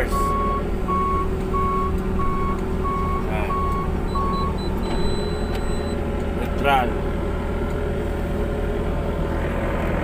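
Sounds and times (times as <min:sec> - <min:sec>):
diesel engine idling: 0:00.0 - 0:10.0
warning beeper: 0:00.1 - 0:06.0.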